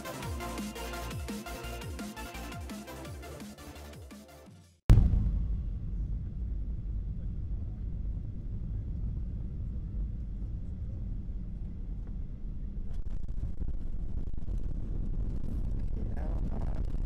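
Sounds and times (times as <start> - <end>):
airflow and engine rumble in cabin: 5.8 - 17.0.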